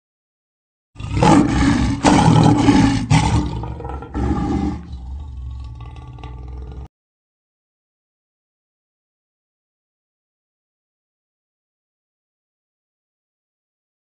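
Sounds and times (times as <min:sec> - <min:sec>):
lion roaring: 0:01.0 - 0:06.9.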